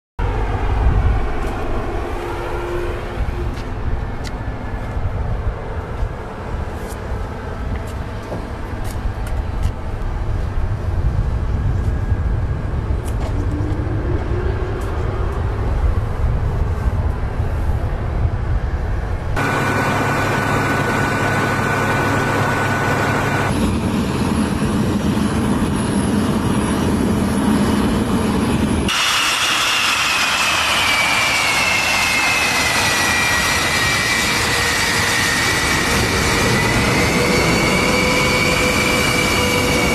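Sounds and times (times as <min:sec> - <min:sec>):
jet engine high whine: 0:00.2 - 0:39.9
jet engine rumble: 0:00.2 - 0:39.9
turbine whine sliding down: 0:11.6 - 0:17.2, 0:19.4 - 0:39.9.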